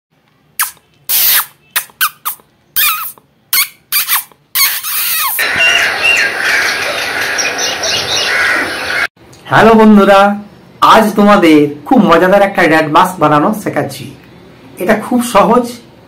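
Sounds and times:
high mouse-like squeaks: 0.6 - 5.4.

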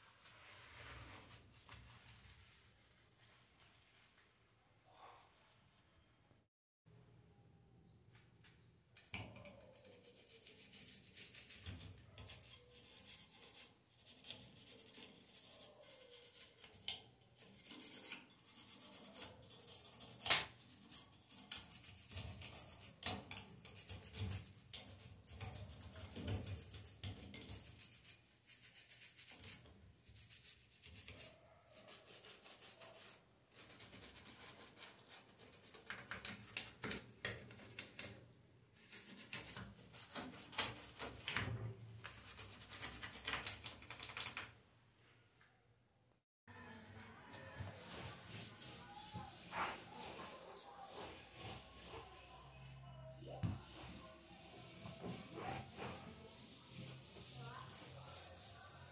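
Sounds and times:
toothbrush scrubbing glass: 9.3 - 38.2, 38.8 - 44.4, 47.4 - 52.8, 53.5 - 58.9.

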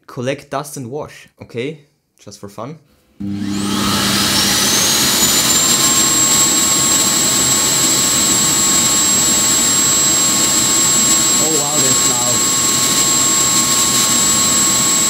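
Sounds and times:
suction motor whining loudly: 3.2 - 15.0.

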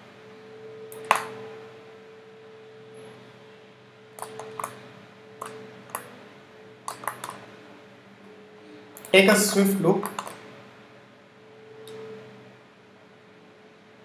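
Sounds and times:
faint steady hum: 0.0 - 14.0
computer mouse clicks: 4.2 - 4.8, 5.4 - 6.2, 6.9 - 7.4, 10.0 - 10.4.

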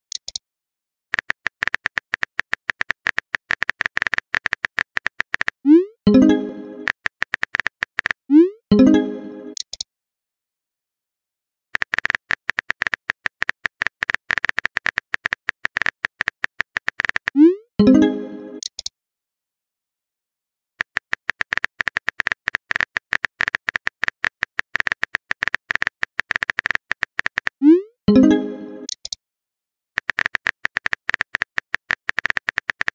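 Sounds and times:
phone keyboard typing clicks: 1.2 - 8.2, 11.8 - 17.4, 20.8 - 27.6, 28.9 - 29.2, 30.0 - 32.9
chiming message tone: 6.1 - 6.8, 8.7 - 9.6, 17.8 - 18.6, 28.1 - 28.9.

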